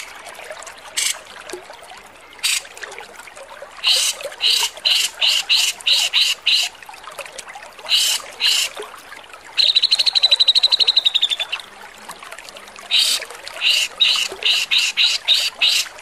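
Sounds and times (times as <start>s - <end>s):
bird harsh rasping calls: 12.9s - 15.9s.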